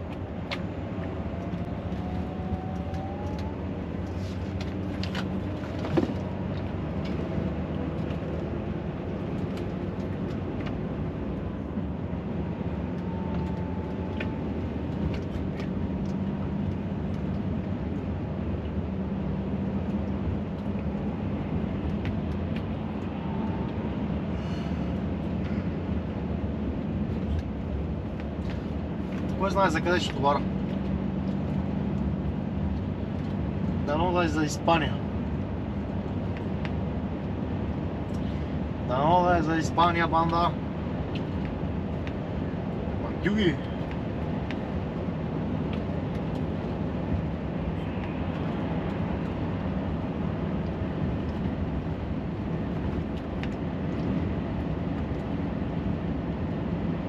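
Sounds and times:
lorry engine drone: 0.0s - 39.0s.

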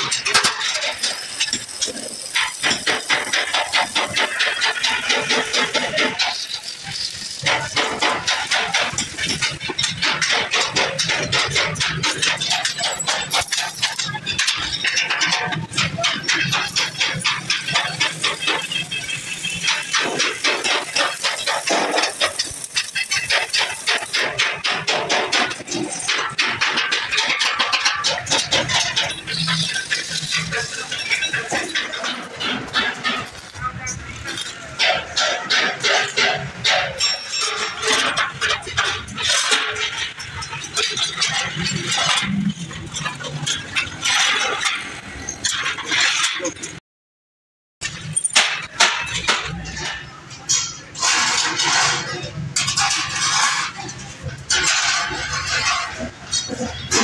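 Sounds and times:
noisy background: 0.0s - 46.8s
sheet metal scraping and clinking: 0.0s - 46.8s, 47.8s - 57.0s.

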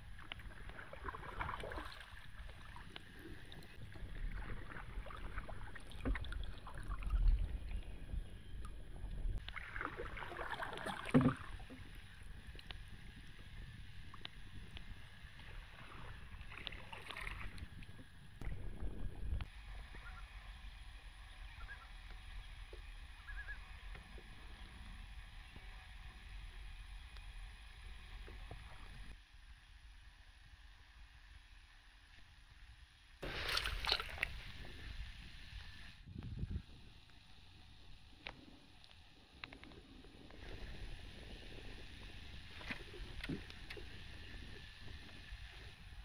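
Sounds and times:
wind rumble on microphone: 0.0s - 25.8s, 33.2s - 46.0s
paddle splashing water: 0.1s - 7.5s, 9.4s - 11.9s, 15.6s - 17.6s, 33.2s - 34.8s
faint chirps: 19.7s - 23.8s.

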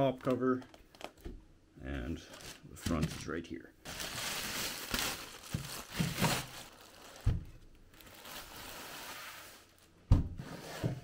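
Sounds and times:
plastic bag crinkling: 2.3s - 9.9s.

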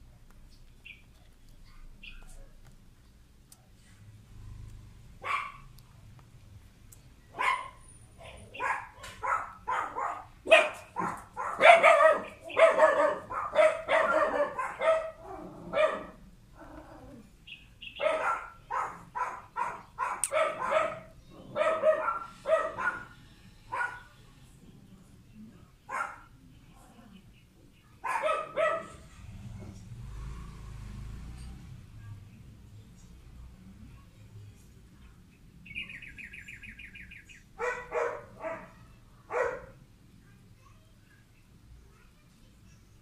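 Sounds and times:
puppy yelping and barking: 5.2s - 5.7s, 7.4s - 17.1s, 17.8s - 24.1s, 37.6s - 38.7s.

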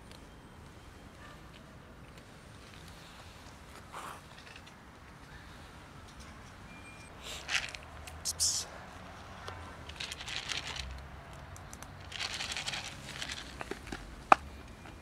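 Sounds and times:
plastic container crinkling: 9.9s - 11.0s, 11.6s - 14.0s.

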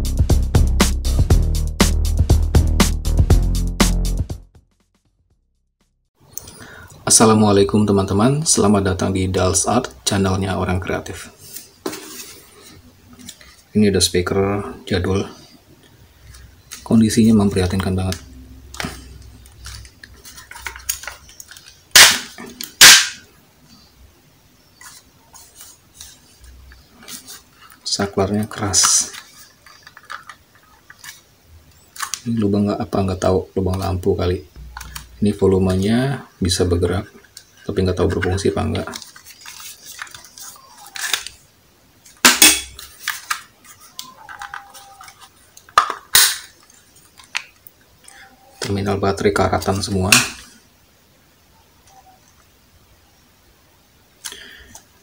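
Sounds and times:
sharp plastic snap: 21.9s - 23.2s, 45.8s - 46.5s.

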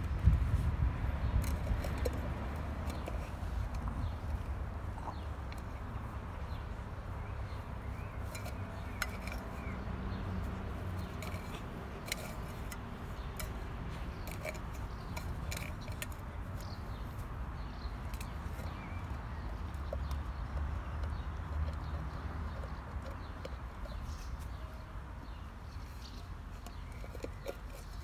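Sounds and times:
tin can clinking and scraping: 7.5s - 10.2s, 10.8s - 19.8s, 26.1s - 28.0s.

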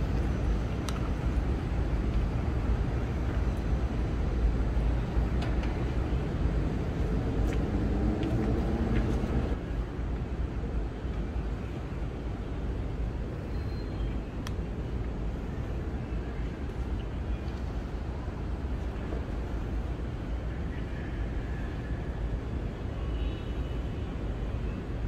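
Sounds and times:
distant traffic rumble: 0.0s - 23.2s.

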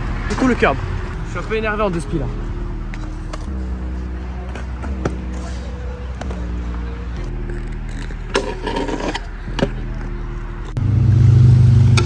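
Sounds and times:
scooter wheels rolling on concrete: 2.8s - 10.8s
scooter grinding on curb: 7.2s - 10.8s.

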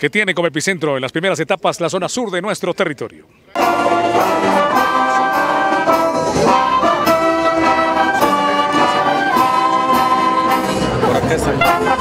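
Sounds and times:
wind band playing: 3.6s - 12.0s.

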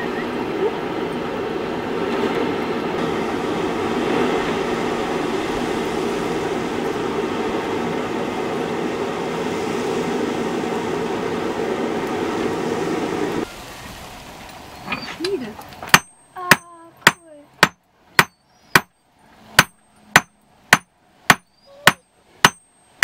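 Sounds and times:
forge fire air blast roar: 0.0s - 14.8s.

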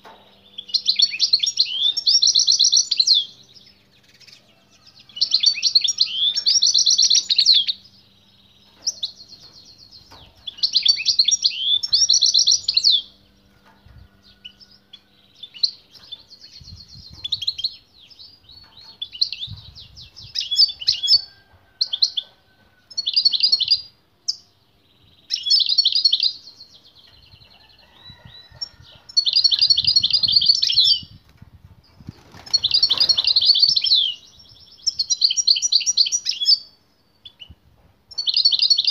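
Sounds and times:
finch twittering song: 0.0s - 22.3s.

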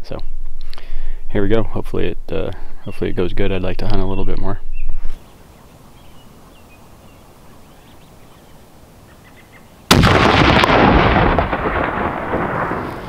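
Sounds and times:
rifle shot: 9.9s - 13.0s
rumbling echo: 9.9s - 13.0s.

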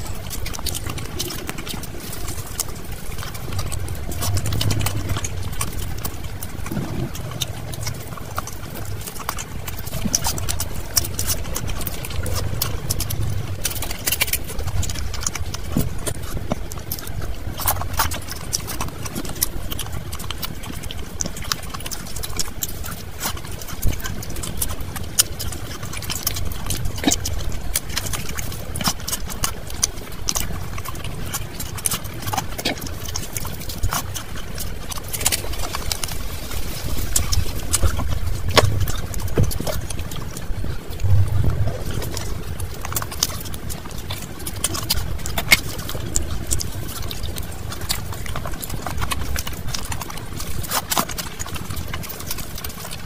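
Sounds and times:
sharp mouth clicks: 0.0s - 20.6s
chewing and wet mouth sounds: 0.0s - 53.0s.

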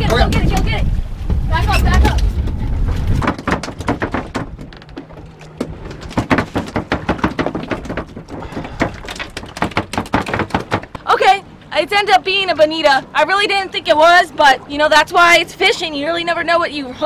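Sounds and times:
clatter of knocks and taps: 3.2s - 11.0s.

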